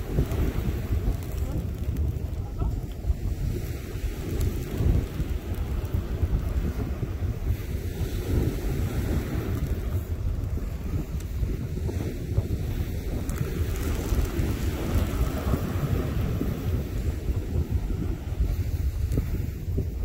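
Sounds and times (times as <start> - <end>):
small waves breaking on beach: 0.0 - 20.0
wind buffeting microphone: 0.0 - 20.0.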